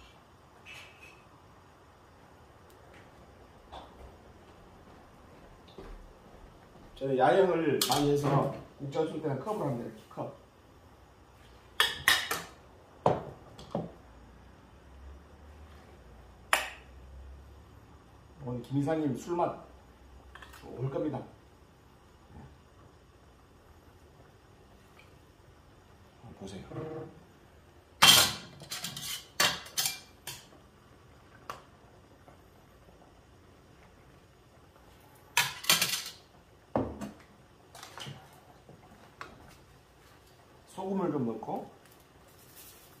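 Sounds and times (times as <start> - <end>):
metal cookware clinking: 28.0 - 30.5, 35.4 - 36.2
pots and mug clattering: 35.4 - 36.2.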